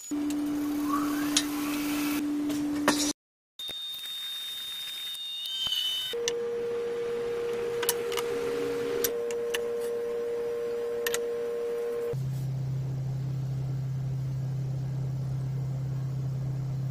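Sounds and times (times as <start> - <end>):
steady pure tone: 6.1 - 16.9.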